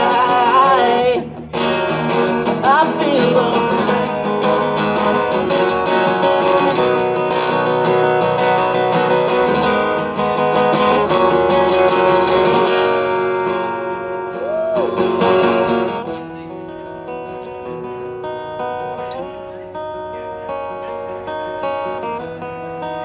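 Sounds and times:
acoustic guitar strumming chords: 0.0 - 23.0.

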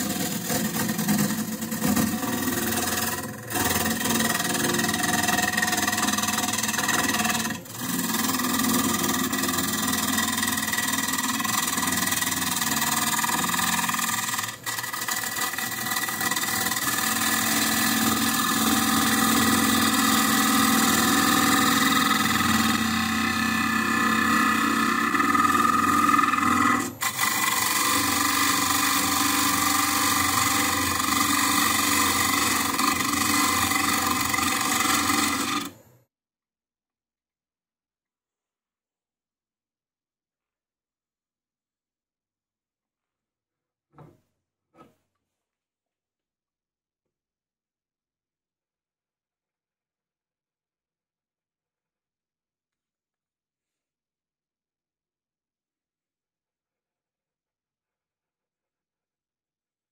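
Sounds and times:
gouge cutting wood: 0.0 - 35.8
wood lathe running: 0.0 - 35.8.

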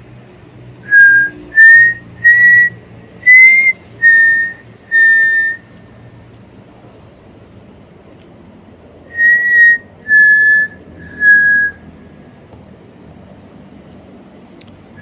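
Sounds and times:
short whistled notes: 0.9 - 5.6, 9.2 - 11.8.

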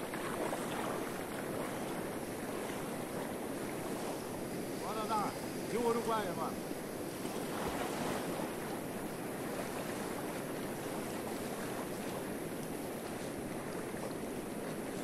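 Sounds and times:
river water rushing and lapping: 0.0 - 15.0.

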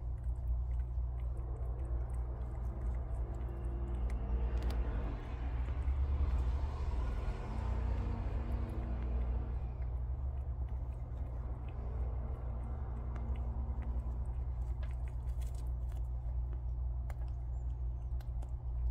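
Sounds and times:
faint chewing clicks: 0.0 - 18.9
low rumble: 0.0 - 18.9
passing vehicle rushing: 1.8 - 10.4.

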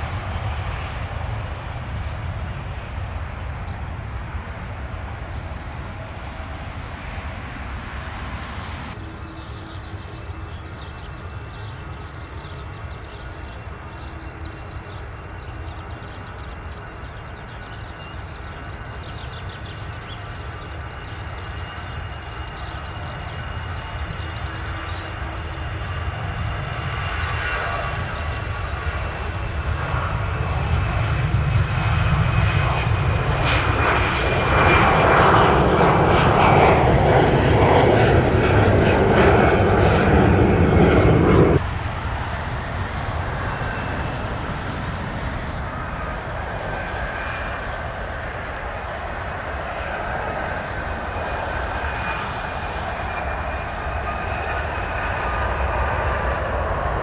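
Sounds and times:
jet airliner engine noise: 0.0 - 57.0
high fan whine: 36.6 - 57.0.

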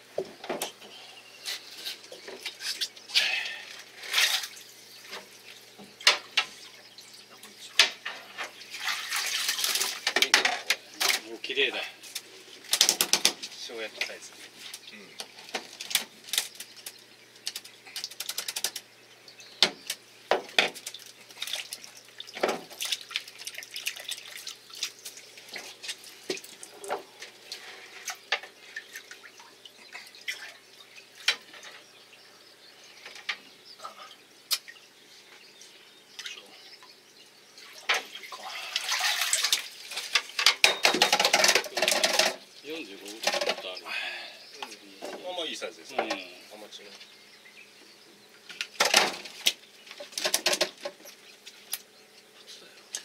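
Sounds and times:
splashing and rustling: 1.4 - 18.9, 19.6 - 31.9, 37.6 - 43.8, 48.4 - 52.0.

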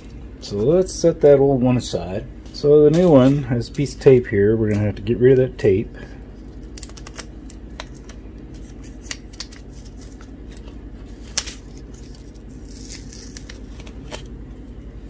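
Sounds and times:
adhesive tape crackling: 6.5 - 14.4
tape peeling rasp: 11.4 - 14.3.

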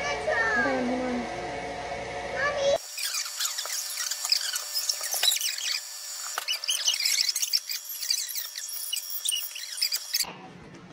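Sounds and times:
sped-up squeaky voices: 2.8 - 10.3.

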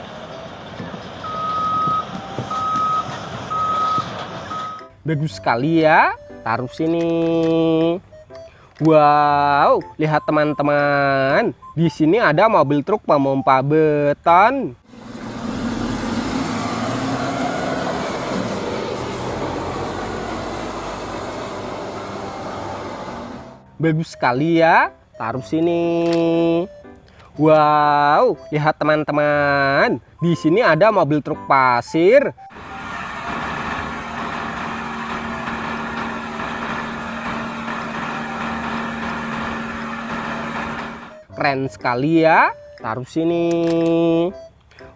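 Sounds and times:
diesel truck engine droning: 0.0 - 10.6, 14.8 - 25.7, 32.3 - 41.9
road noise: 0.0 - 10.6, 14.7 - 27.7, 32.2 - 41.5
steady hydraulic hum: 14.9 - 23.8, 32.5 - 41.3.

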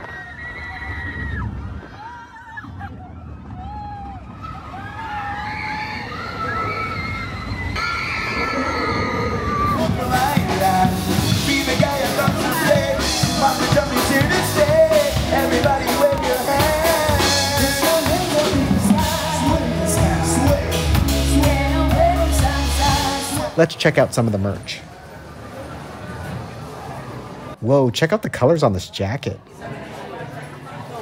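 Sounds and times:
live band playing dance music: 9.6 - 23.8.

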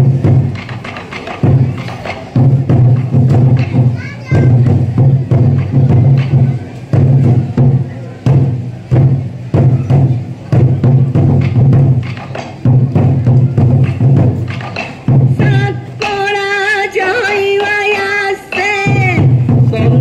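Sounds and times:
drums beating together: 0.0 - 20.0.

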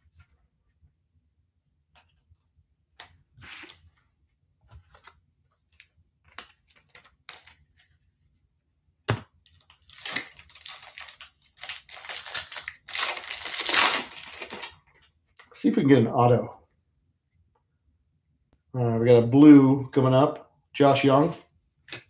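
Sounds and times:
card pack clicks and rustles: 5.7 - 7.9, 9.4 - 14.8
foil wrapper crinkling and tearing: 9.6 - 14.8.

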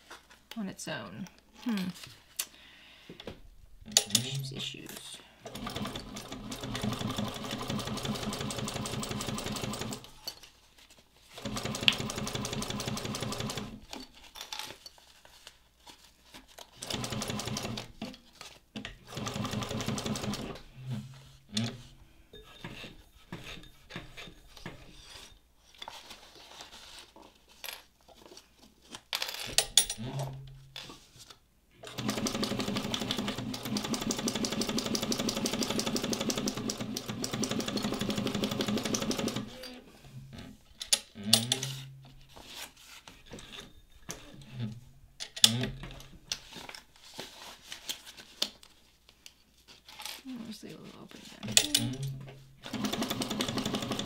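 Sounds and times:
sewing machine stitching: 5.4 - 10.1, 11.4 - 13.8, 16.8 - 17.9, 19.0 - 20.6, 31.8 - 39.8, 51.4 - 54.0.

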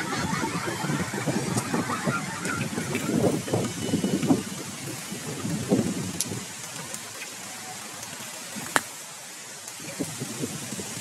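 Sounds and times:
wind rumbling on microphone: 0.0 - 11.0
steady hiss: 2.9 - 11.0.

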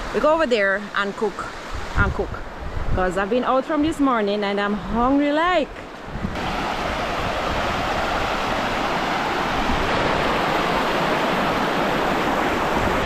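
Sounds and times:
water rushing over rocks: 6.4 - 13.0.

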